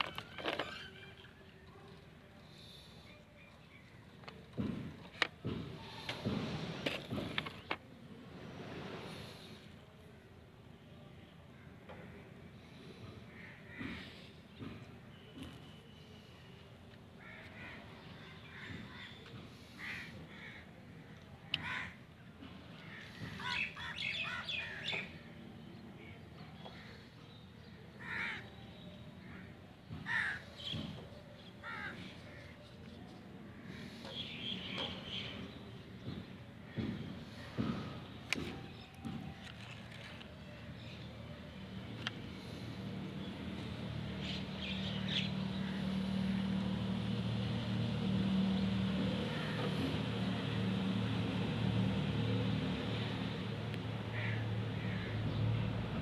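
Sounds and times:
low mechanical hum: 0.0s - 56.0s
crows cawing: 13.3s - 14.1s, 17.2s - 20.8s, 21.5s - 22.0s, 28.0s - 28.5s, 29.2s - 30.5s, 31.6s - 32.6s, 54.1s - 55.2s.

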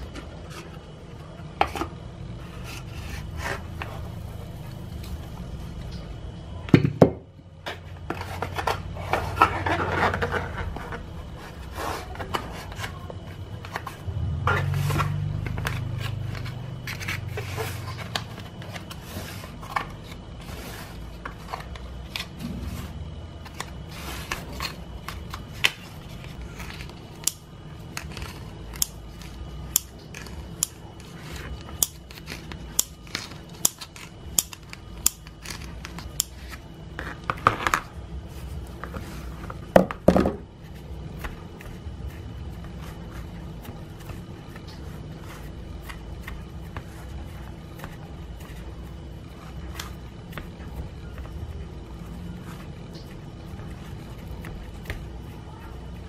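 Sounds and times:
scissors snipping dough: 25.6s - 36.6s.

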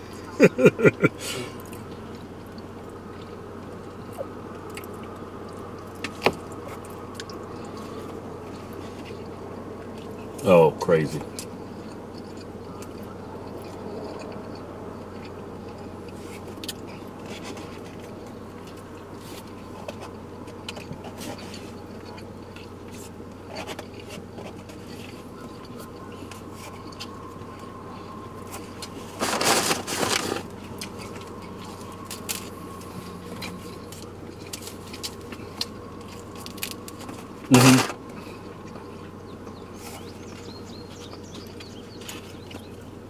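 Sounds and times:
chewing: 0.0s - 10.4s, 11.1s - 43.0s
steady low hum: 0.0s - 43.0s
scrapes and crinkles: 15.8s - 39.2s
packaging rustling: 29.2s - 30.5s.

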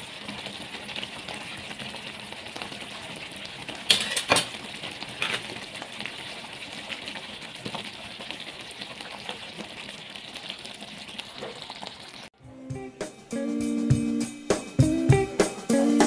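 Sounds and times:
sauce bubbles popping: 0.0s - 12.4s.

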